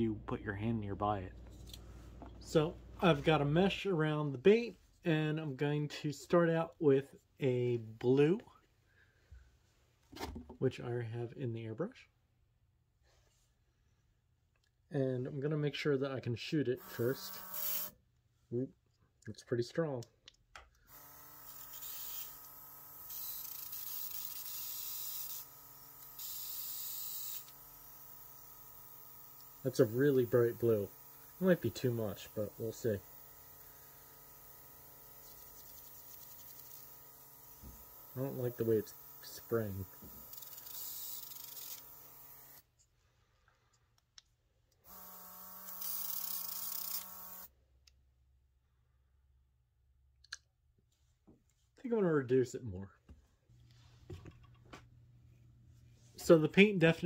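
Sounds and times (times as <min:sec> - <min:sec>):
small compressor humming: 0:16.8 - 0:17.9, 0:20.9 - 0:42.7, 0:44.9 - 0:47.5
airbrush spray hissing: 0:26.2 - 0:41.7.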